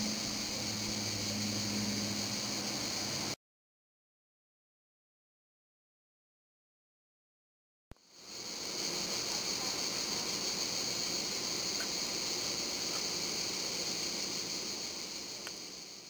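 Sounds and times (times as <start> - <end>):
steady hiss: 0.0 - 3.4, 8.0 - 16.0.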